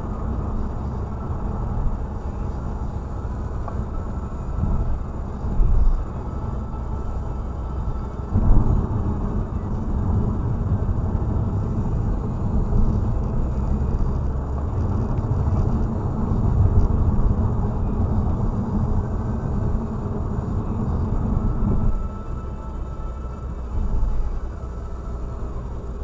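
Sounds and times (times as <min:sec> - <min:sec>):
car cabin road rumble: 0:00.0 - 0:26.0.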